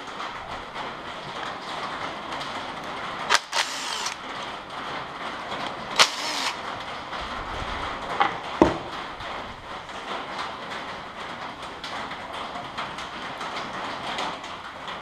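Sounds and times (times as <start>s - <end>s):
cordless ratchet running: 3.3s - 4.2s, 6.0s - 6.6s.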